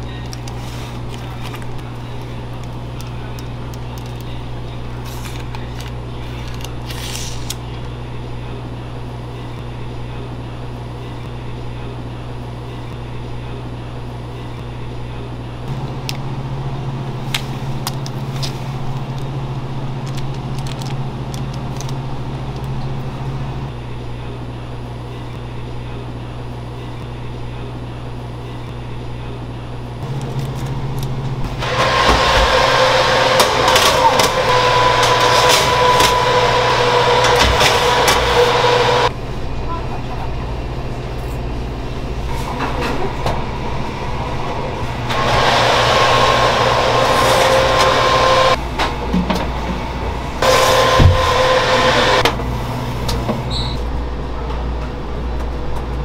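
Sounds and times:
steady machine hum: 0:00.0 - 0:56.0
louder second hum: 0:30.0 - 0:39.6, 0:40.8 - 0:54.4.

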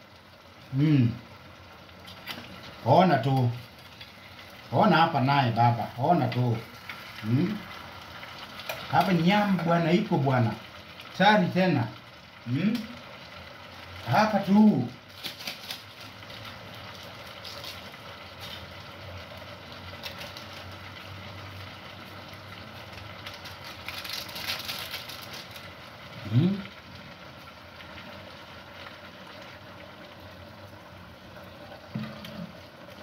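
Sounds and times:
covered pot simmering: 0:00.0 - 0:33.0
brief vocal sound: 0:26.2 - 0:26.6.

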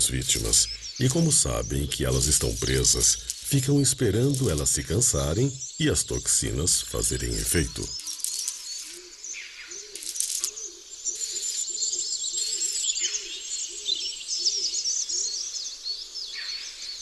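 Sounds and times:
bursts of high hiss: 0:00.0 - 0:04.9
birds chirping and singing: 0:00.0 - 0:17.0.

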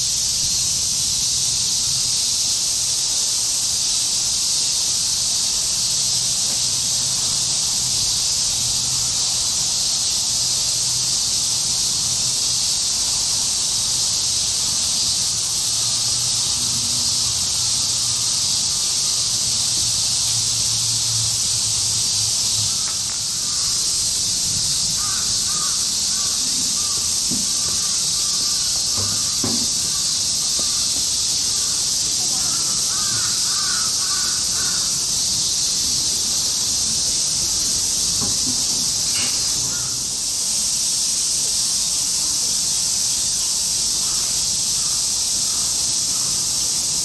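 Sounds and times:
insect chorus drone: 0:00.0 - 0:47.0
crows cawing: 0:22.7 - 0:35.2, 0:39.1 - 0:40.2, 0:44.0 - 0:46.4.

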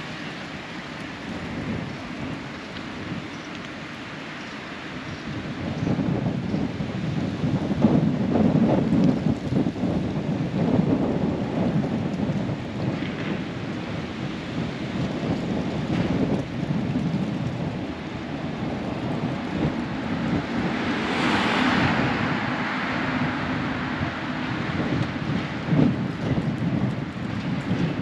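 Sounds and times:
street noise: 0:00.0 - 0:28.0
wind buffeting microphone: 0:00.0 - 0:28.0
car driving past: 0:20.6 - 0:24.5.

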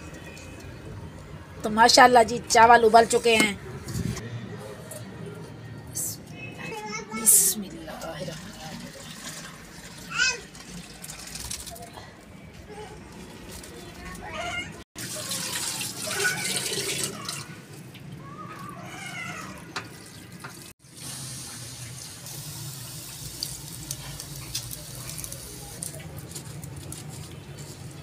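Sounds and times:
hot water pouring and splashing: 0:07.9 - 0:12.3, 0:15.0 - 0:27.0.

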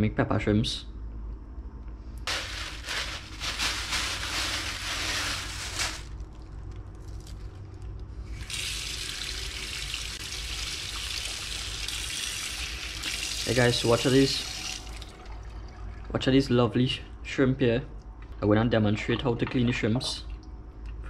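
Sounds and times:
plastic bag rustling: 0:02.3 - 0:07.8
tap water running into sink: 0:08.4 - 0:13.6, 0:14.5 - 0:15.4.

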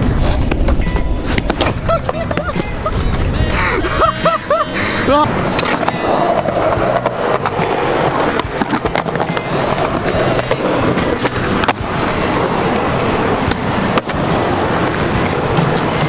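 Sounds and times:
skateboard wheels rolling on concrete: 0:00.0 - 0:16.0
skateboard sharp clacks: 0:05.5 - 0:16.0.

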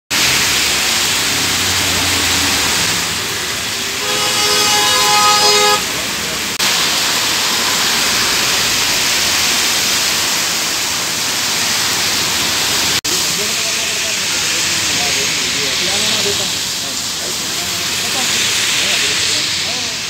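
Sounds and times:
heavy rain on street: 0:00.1 - 0:20.0
vehicles passing through water: 0:00.1 - 0:20.0
vehicle horn: 0:03.9 - 0:06.2.

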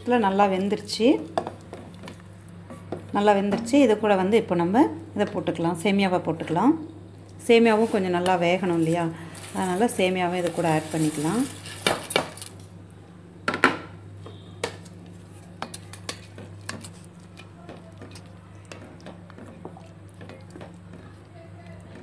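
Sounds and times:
spatula knocking and scraping pot: 0:15.6 - 0:21.2
spatula stirring in metal pot: 0:15.6 - 0:22.0.

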